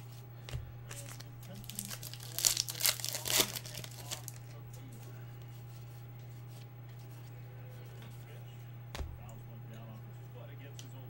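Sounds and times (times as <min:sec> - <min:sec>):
low steady hum: 0:00.0 - 0:11.0
wrapper tearing and crinkling: 0:00.9 - 0:04.5.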